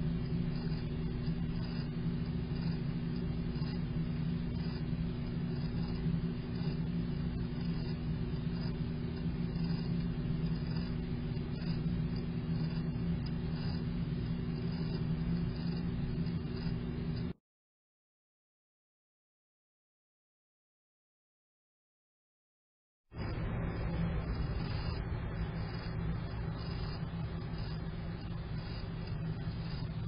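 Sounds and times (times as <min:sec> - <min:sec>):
held low tones: 0:23.2 - 0:30.0
low droning rumble: 0:23.2 - 0:30.0.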